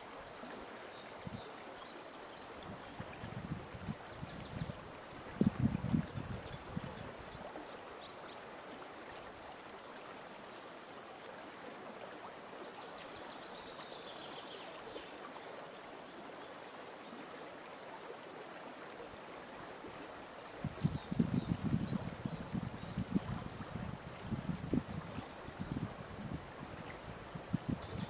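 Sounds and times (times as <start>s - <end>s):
river rushing over shallows: 0.0s - 28.0s.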